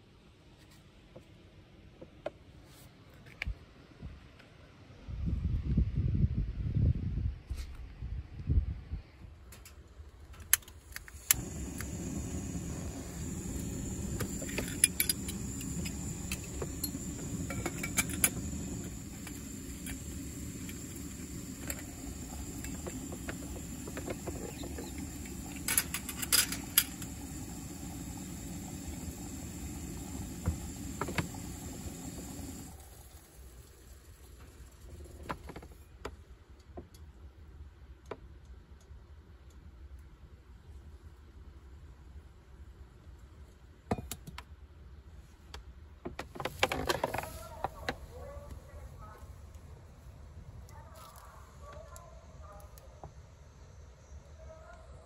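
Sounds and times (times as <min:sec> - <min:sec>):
stove ignition click: 0:10.5 - 0:32.8
gas stove burner roaring: 0:11.0 - 0:33.8.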